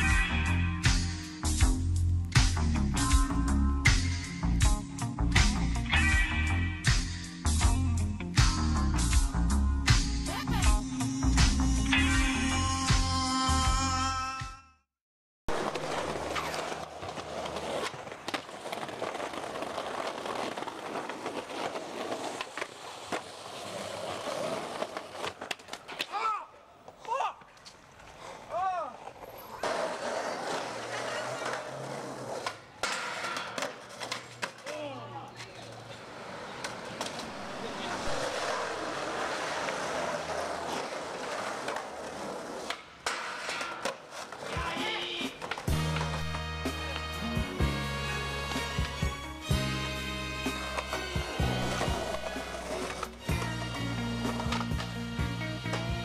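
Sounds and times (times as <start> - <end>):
skateboard wheels rolling on concrete: 0.0 - 13.9, 15.5 - 56.0
skateboard clacking on ground: 15.5 - 47.0, 50.6 - 55.0.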